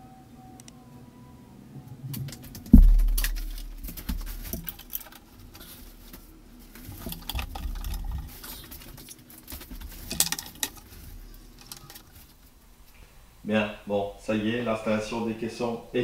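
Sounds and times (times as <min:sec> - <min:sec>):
low thud: 0:02.7 - 0:04.9.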